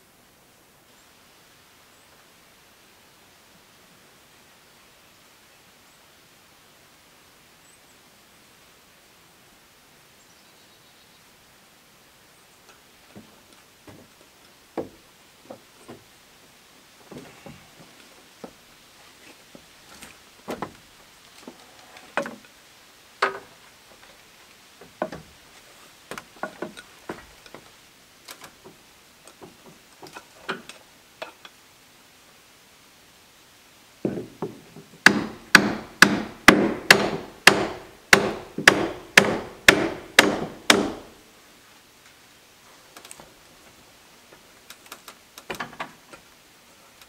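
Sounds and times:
light knocks and taps: 0:13.1 - 0:14.2, 0:34.0 - 0:34.9
hammer driving nails into wood: 0:34.1 - 0:41.1.

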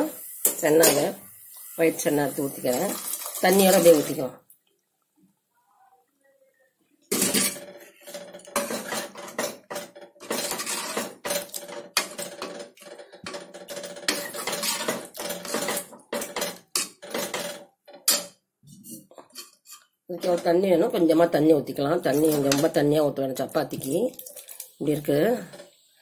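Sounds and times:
ladle scraping metal pot: 0:07.1 - 0:20.8, 0:22.0 - 0:22.8.

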